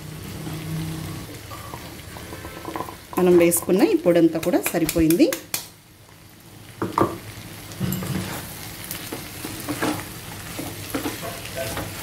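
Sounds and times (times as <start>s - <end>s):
vegetables sizzling in a pan: 0.0s - 12.0s
wooden spatula scraping: 8.0s - 12.0s.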